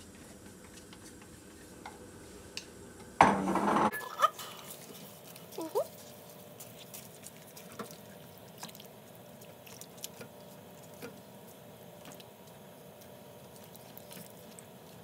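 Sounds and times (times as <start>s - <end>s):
spatula stirring wet rice: 4.0s - 15.0s.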